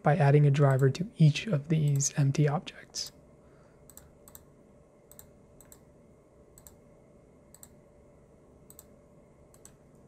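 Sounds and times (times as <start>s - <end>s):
computer mouse clicks: 3.8s - 4.5s, 5.1s - 5.9s, 6.5s - 6.8s, 7.5s - 7.8s, 8.6s - 10.0s.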